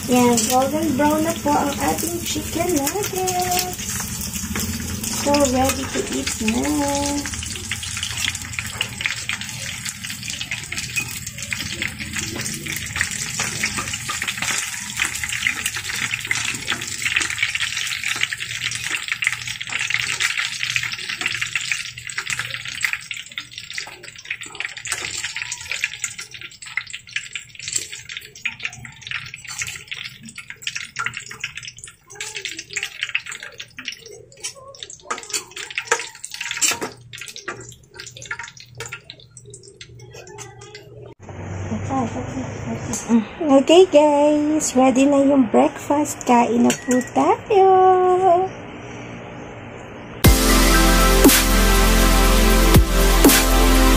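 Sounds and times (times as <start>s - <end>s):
food sizzling in frying oil: 0.0s - 43.1s, 50.2s - 53.9s.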